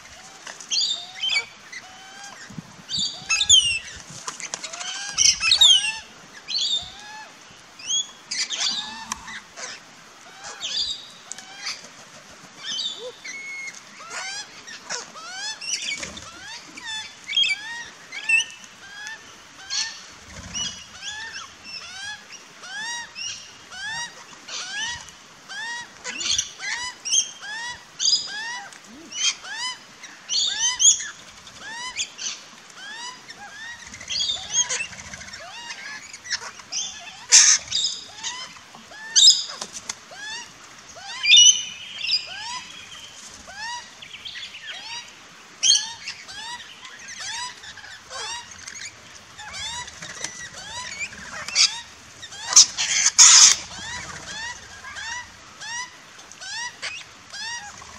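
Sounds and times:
birds chirping: 0.0 - 57.9
shrill bird screeches: 52.4 - 55.2.

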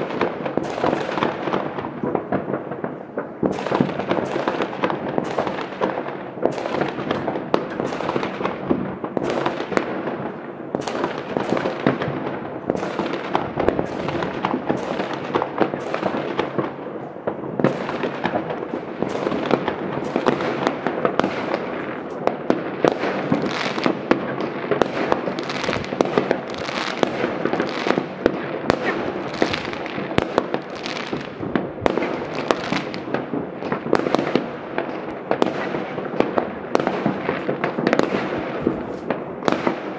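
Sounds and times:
fireworks crackling and banging: 0.0 - 39.9.

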